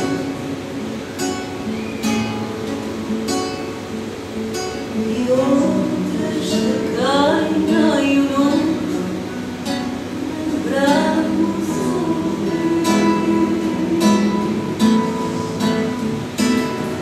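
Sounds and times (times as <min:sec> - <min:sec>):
plucked guitars: 0:00.0 - 0:17.0
woman singing: 0:04.9 - 0:16.2.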